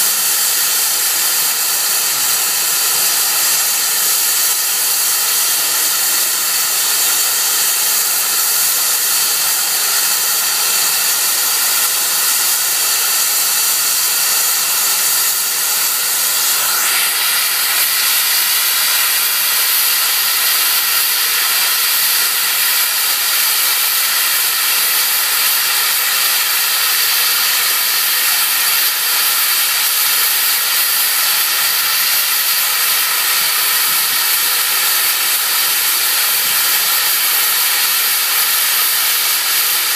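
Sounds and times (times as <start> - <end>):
steam locomotive hissing: 0.0 - 39.9.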